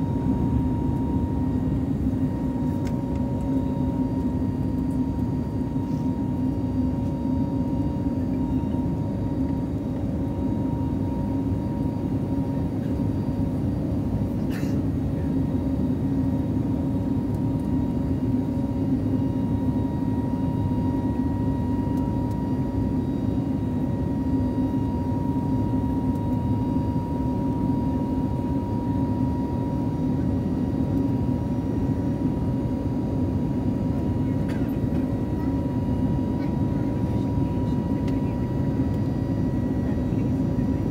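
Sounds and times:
airliner cabin engine drone: 0:00.0 - 0:40.9.

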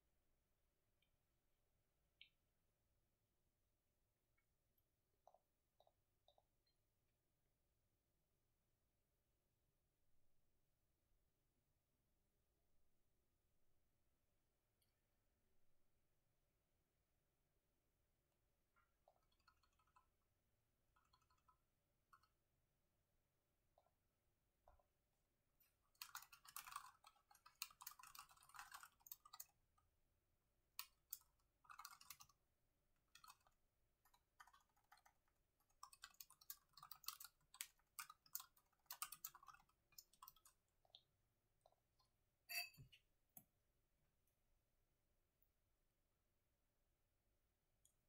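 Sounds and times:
laptop keyboard typing: 0:18.8 - 0:22.4, 0:25.6 - 0:29.9, 0:30.6 - 0:41.0.

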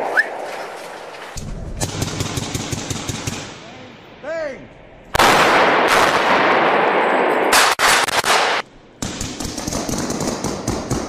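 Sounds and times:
rifle gunfire echoing: 0:01.8 - 0:03.6, 0:05.1 - 0:11.0.

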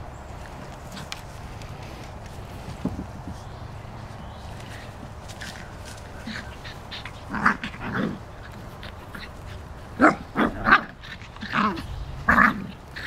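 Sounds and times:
small dogs play barking: 0:04.5 - 0:13.0.

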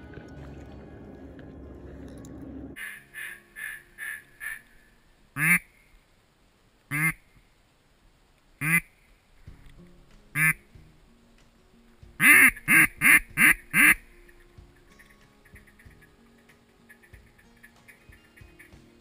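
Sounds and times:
duck quacking: 0:02.8 - 0:04.7, 0:05.4 - 0:05.7, 0:06.9 - 0:07.2, 0:08.6 - 0:08.9, 0:10.4 - 0:10.6, 0:12.2 - 0:14.4.

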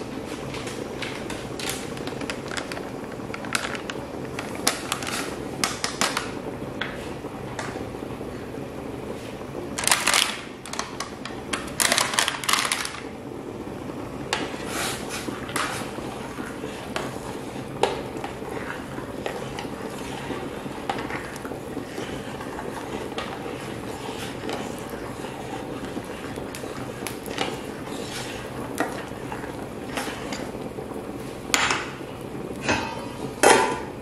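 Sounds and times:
steady low hum: 0:00.0 - 0:34.0
metal spoon stirring in a pot: 0:14.3 - 0:30.7.

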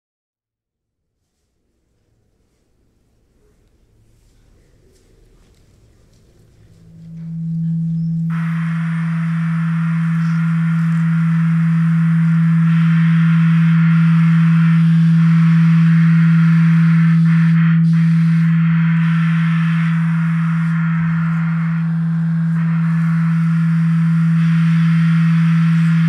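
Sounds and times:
loud low pure tone: 0:04.6 - 0:26.0
faint higher tone: 0:06.6 - 0:11.8.

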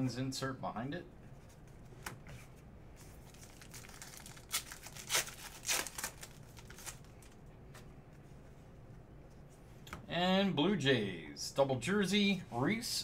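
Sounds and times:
card pack wrapper tearing and crinkling: 0:03.2 - 0:07.4.

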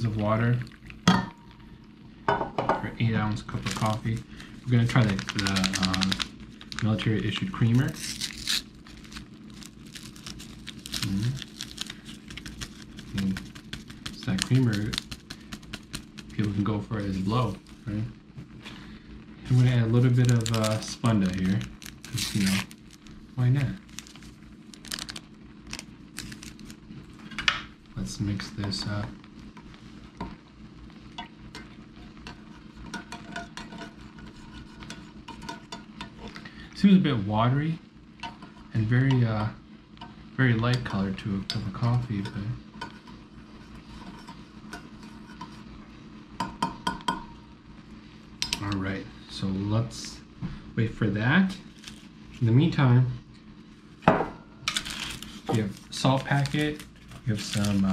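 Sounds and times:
powder pouring from crinkling pouch: 0:03.2 - 0:17.9, 0:19.4 - 0:26.8, 0:51.6 - 0:52.5, 0:54.7 - 0:57.9
spoon stirring in mug: 0:32.2 - 0:36.2.

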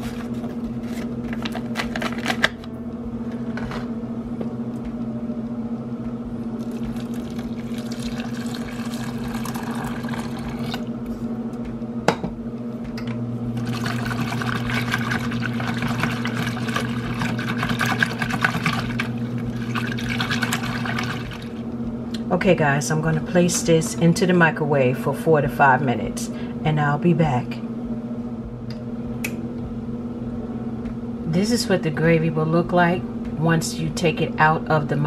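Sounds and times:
electrical hum: 0:00.0 - 0:35.0
water pouring into bowl: 0:06.6 - 0:10.9, 0:13.6 - 0:21.6
whisk beating in plastic bowl: 0:13.8 - 0:21.6.

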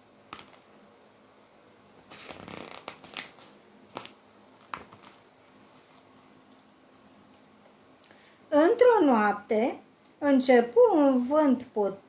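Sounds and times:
book pages rustling: 0:02.0 - 0:06.2.

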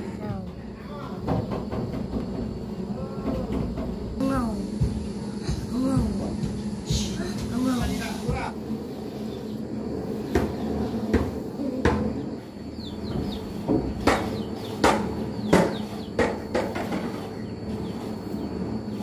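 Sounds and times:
sharp knocks: 0:01.2 - 0:02.6, 0:13.1 - 0:17.2
broom sweeping tile floor: 0:04.2 - 0:19.0.

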